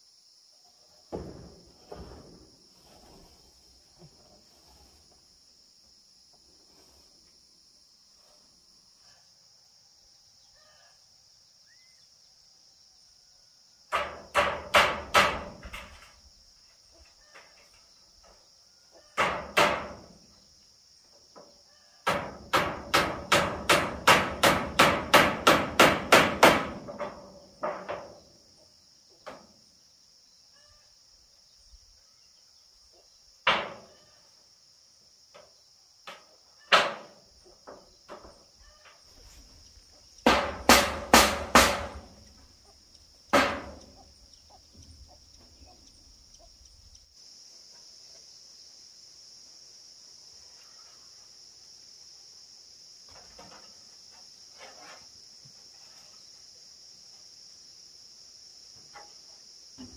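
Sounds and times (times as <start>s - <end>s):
high insect drone: 0.0s - 59.9s
hammer striking metal roofing: 13.9s - 16.1s, 19.2s - 20.2s, 22.0s - 28.2s, 36.1s - 38.3s, 40.2s - 42.3s, 43.3s - 44.0s.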